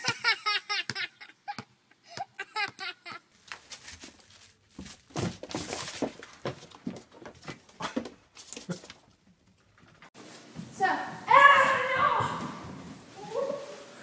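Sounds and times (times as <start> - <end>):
child laughing: 0.0 - 3.3.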